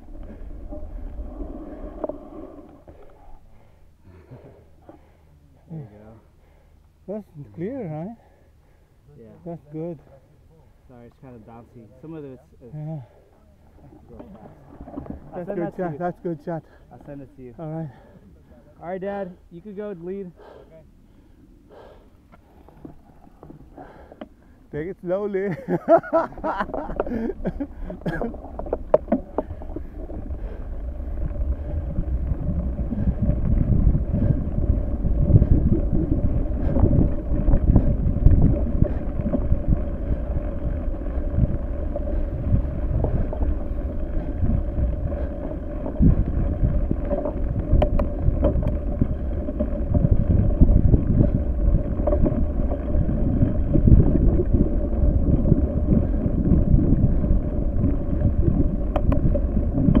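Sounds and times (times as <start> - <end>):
wind buffeting microphone: 25.5 - 60.0
steady hum: 25.7 - 60.0.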